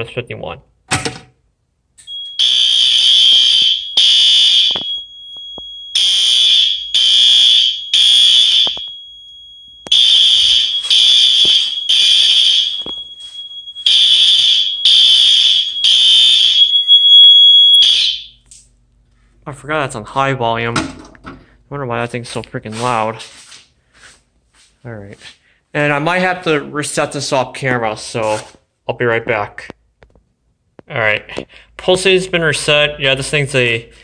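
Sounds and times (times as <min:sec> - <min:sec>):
fire alarm pull station snapping: 0:02.0 - 0:09.1, 0:09.8 - 0:18.4
fire alarm horn blasts: 0:02.0 - 0:18.4
thin steady high tone: 0:07.8 - 0:17.9.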